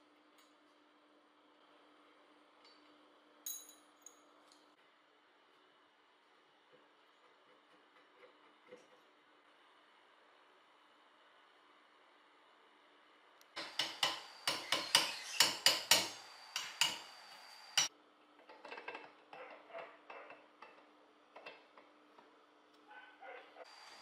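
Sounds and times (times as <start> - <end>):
light metal clinks: 3.4 - 4.3.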